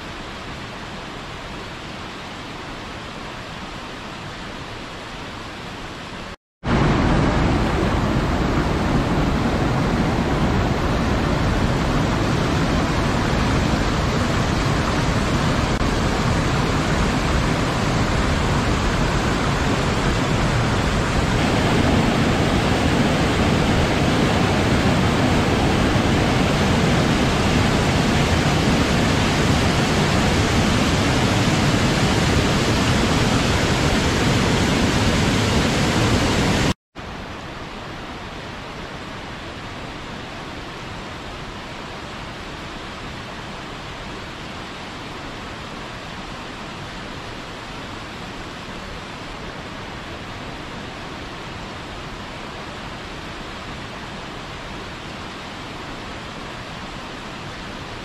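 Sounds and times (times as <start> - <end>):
water rushing over rocks: 6.6 - 36.8.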